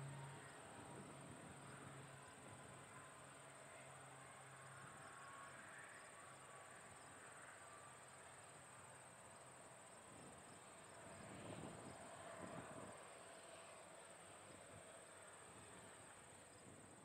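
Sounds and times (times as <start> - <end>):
crickets chirring: 4.6 - 12.7.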